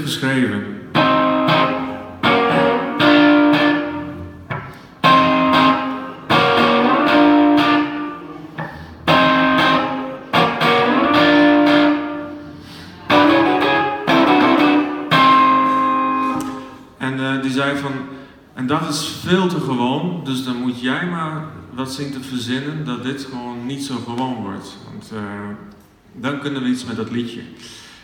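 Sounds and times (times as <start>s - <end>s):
electric guitar riff: 0.8s - 17.0s.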